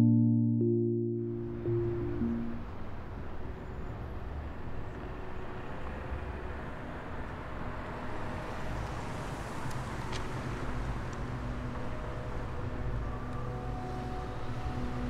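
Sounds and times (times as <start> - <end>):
synth music sting: 0.0 - 2.7
city traffic rumble: 1.4 - 15.0.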